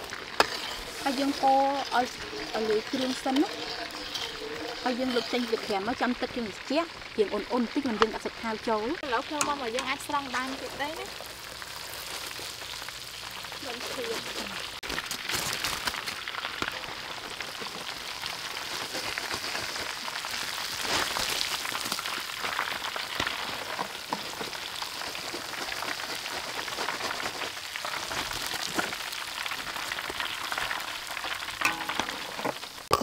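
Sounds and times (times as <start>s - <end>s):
deep-frying oil sizzling: 0.0s - 33.0s.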